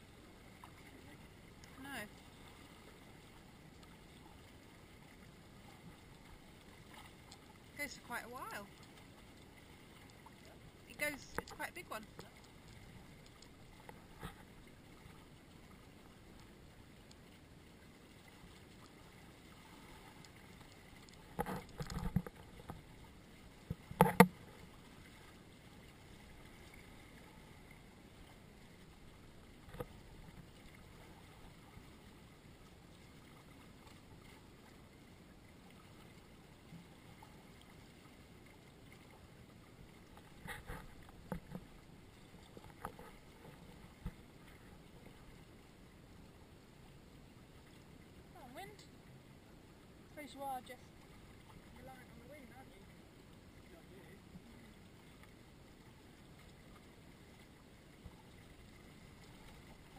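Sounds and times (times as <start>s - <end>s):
water washing against boat hull: 18.1s - 27.5s.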